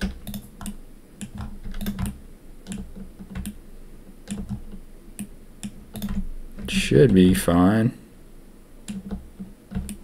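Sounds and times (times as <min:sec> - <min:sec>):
keyboard and mouse clicking: 0:00.0 - 0:03.6, 0:04.2 - 0:07.3, 0:08.8 - 0:10.0.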